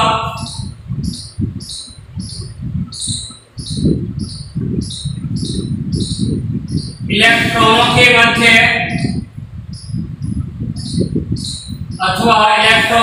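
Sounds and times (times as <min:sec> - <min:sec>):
high falling chirp: 0:00.0 - 0:07.2, 0:08.8 - 0:12.2
marker writing on whiteboard: 0:00.4 - 0:07.1.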